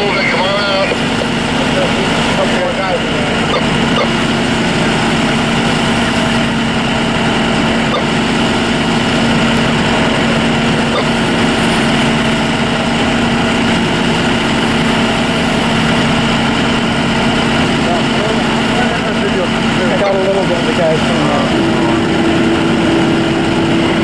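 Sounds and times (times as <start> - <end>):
diesel engine droning: 0.0 - 24.0.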